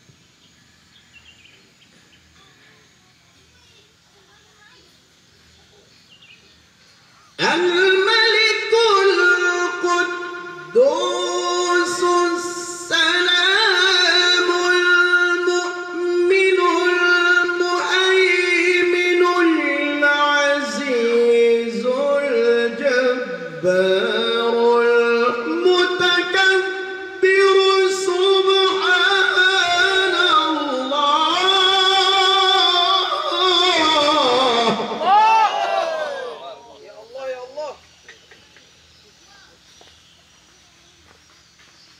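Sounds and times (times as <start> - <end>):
man chanting recitation: 7.2 - 35.1.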